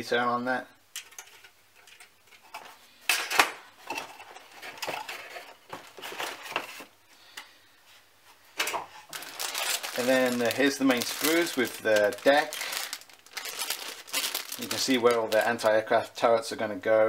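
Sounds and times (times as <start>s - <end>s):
plastic parts clattering in box: 3.1s - 6.8s, 9.1s - 15.6s
rustling of bags and insert: 3.8s - 7.0s, 8.6s - 15.7s.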